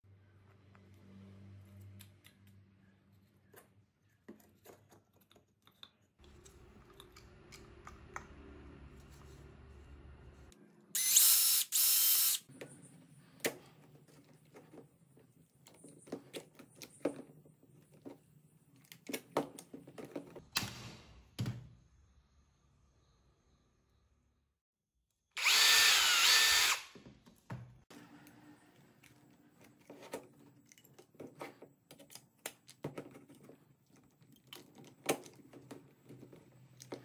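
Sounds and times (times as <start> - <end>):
cordless drill driving a screw: 11.0 - 12.5, 25.4 - 27.0.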